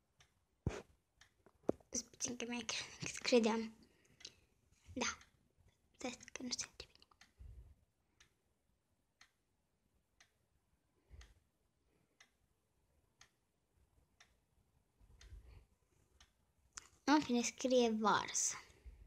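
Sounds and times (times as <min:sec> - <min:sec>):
clock ticking: 0:00.0 - 0:04.4, 0:05.0 - 0:05.4, 0:08.2 - 0:08.4, 0:09.2 - 0:09.4, 0:10.2 - 0:10.4, 0:11.2 - 0:11.4, 0:12.1 - 0:12.4, 0:13.2 - 0:13.4, 0:14.2 - 0:14.4, 0:15.1 - 0:15.4, 0:16.2 - 0:18.7.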